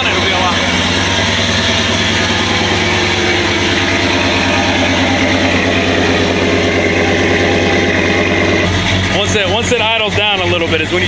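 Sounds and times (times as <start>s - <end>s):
truck engine idling: 0.0s - 11.0s.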